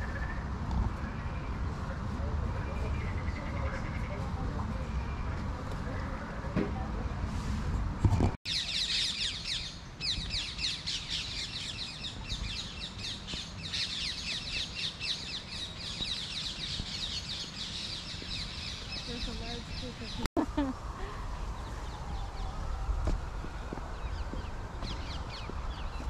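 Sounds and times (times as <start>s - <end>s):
small birds chirping: 8.5s - 20.3s, 23.4s - 26.0s.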